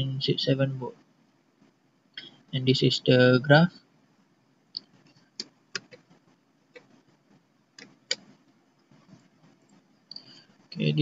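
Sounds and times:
computer mouse clicking: 0:04.8 - 0:07.0, 0:07.8 - 0:10.4.

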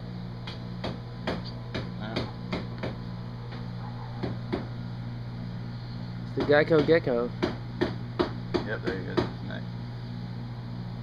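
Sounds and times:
low mechanical hum: 0:00.0 - 0:11.0
sharp knocks: 0:00.4 - 0:03.0, 0:04.2 - 0:04.7, 0:06.4 - 0:09.4.

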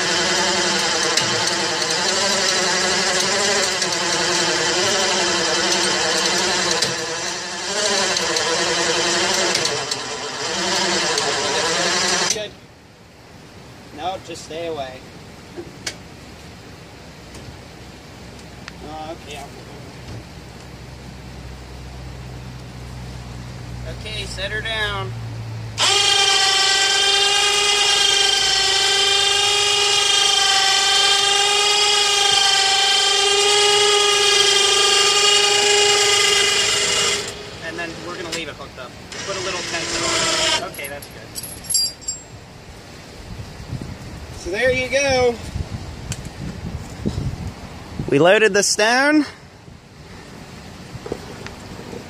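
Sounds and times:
winch whining under load: 0:00.0 - 0:12.6, 0:25.7 - 0:42.4.

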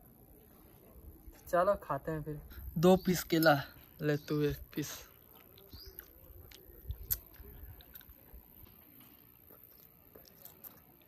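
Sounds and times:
person chewing food: 0:05.1 - 0:11.0
wet mouth clicks: 0:05.3 - 0:08.8.

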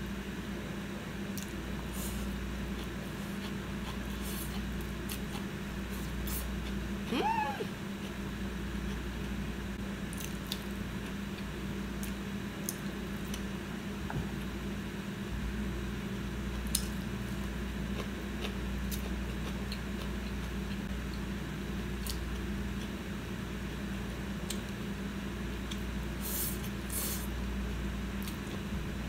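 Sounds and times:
steady low hum: 0:00.0 - 0:29.0
wet chewing sounds: 0:10.1 - 0:13.5.

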